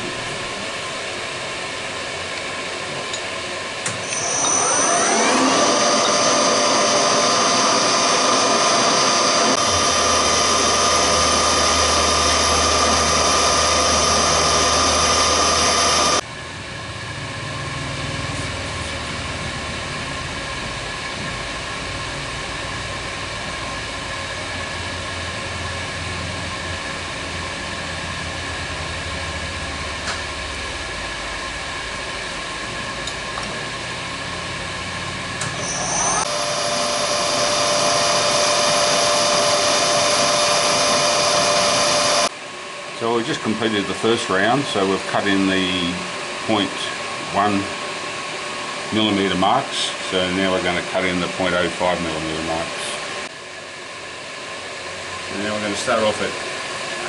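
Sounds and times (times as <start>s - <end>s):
milling spindle whine: 0.0s - 42.4s
steady hum: 0.0s - 56.4s
engraving bit cutting plastic: 3.9s - 16.2s.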